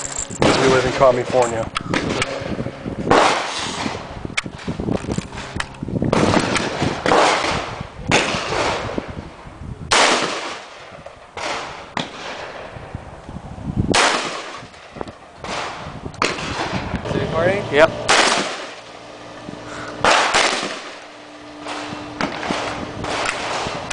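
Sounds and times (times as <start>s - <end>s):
rifle single shots echoing: 20.0s - 21.1s.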